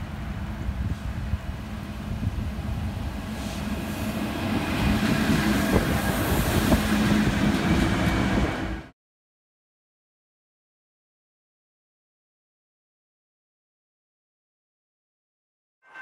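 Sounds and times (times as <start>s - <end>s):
diesel locomotive engines droning: 0.0s - 8.9s
wheels rumbling on rails: 0.0s - 8.9s.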